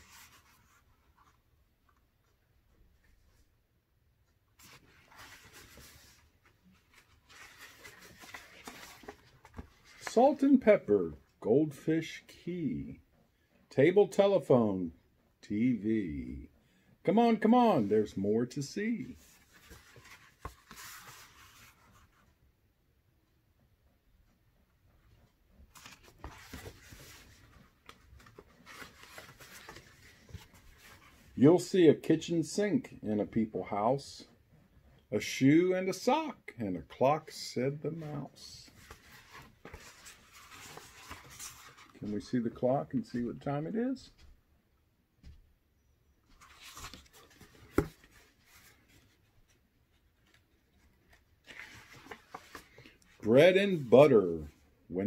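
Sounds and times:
book pages rustling: 0.0s - 3.5s, 4.3s - 10.9s, 17.2s - 22.4s, 25.6s - 31.4s, 37.3s - 43.1s, 46.2s - 54.6s.

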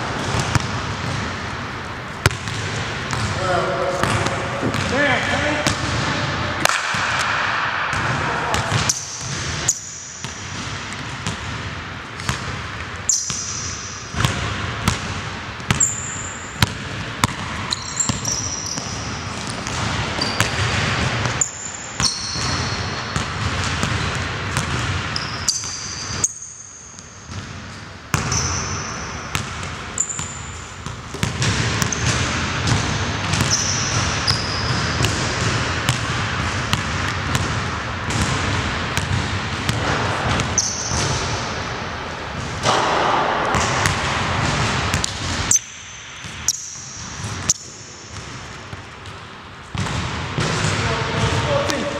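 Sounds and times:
sneakers squeaking: 0.0s - 7.2s, 7.9s - 51.9s
basketball bouncing on hardwood: 0.2s - 1.3s, 29.3s - 41.1s.

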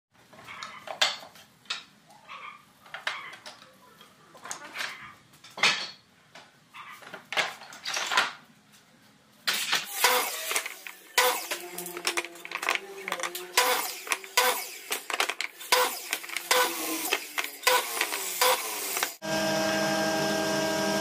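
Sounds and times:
wooden boards clattering and scraping: 9.5s - 19.2s.

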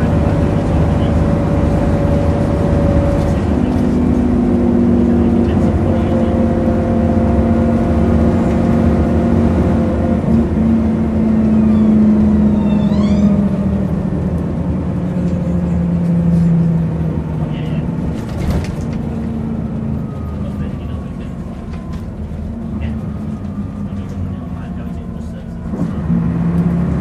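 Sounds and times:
bus diesel engine running: 0.0s - 27.0s
brief high squeal: 11.6s - 13.4s.

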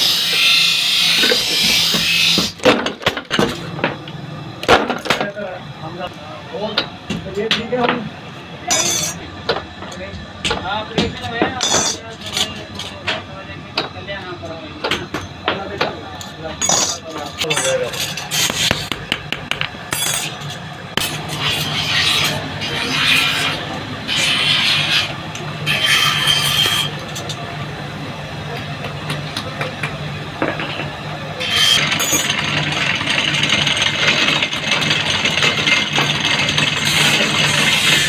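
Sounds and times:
drill bit grinding wood: 31.4s - 38.0s.

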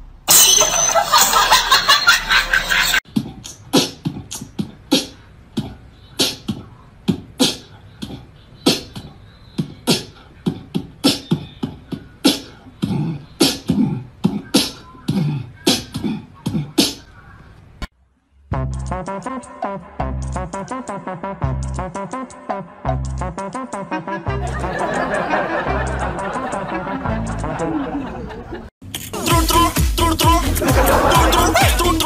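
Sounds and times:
music with steady beat: 18.5s - 27.7s, 29.2s - 32.0s.

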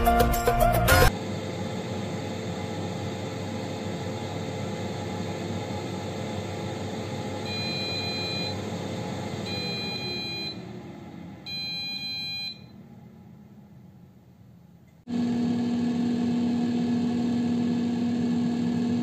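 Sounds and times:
airfryer fan whirring: 1.1s - 19.0s
airfryer beeps: 7.4s - 8.7s, 9.4s - 10.6s, 11.5s - 12.8s.

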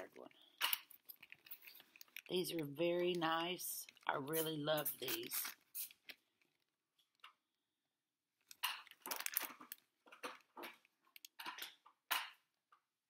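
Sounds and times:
plastic packaging crinkling: 0.8s - 6.7s, 8.4s - 11.6s.

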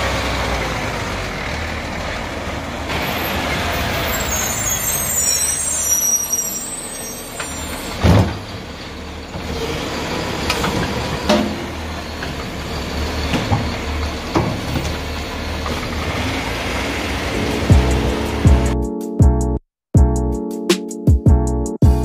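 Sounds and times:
low engine drone: 11.4s - 18.8s.

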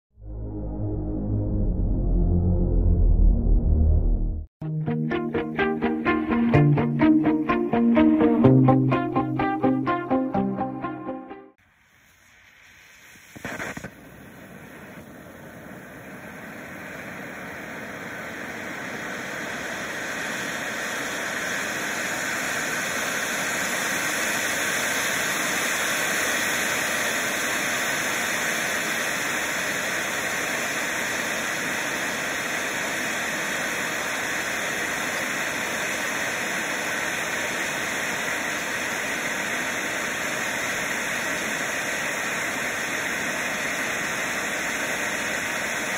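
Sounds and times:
firework fountain hissing: 11.6s - 45.9s.

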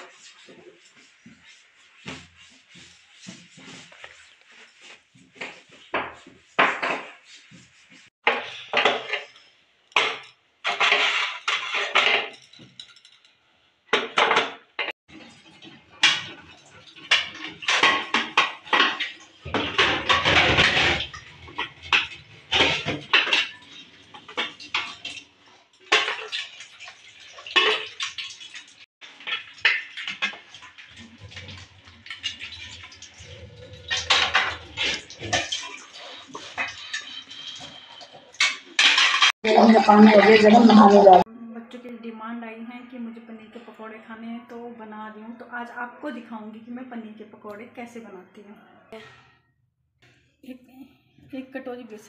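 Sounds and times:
dishes clattering in steel sink: 5.4s - 7.2s, 8.2s - 13.3s, 13.9s - 25.3s, 25.9s - 41.2s.

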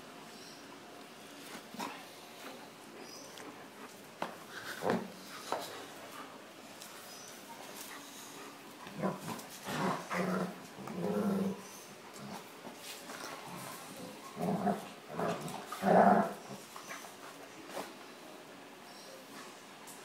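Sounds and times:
dogs growling while play-fighting: 8.8s - 12.5s, 13.1s - 16.7s.

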